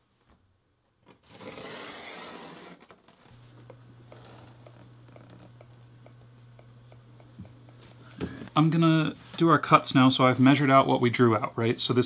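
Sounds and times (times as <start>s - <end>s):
low steady hum: 0.0s - 12.0s
pencil scratching along ruler: 1.4s - 2.8s.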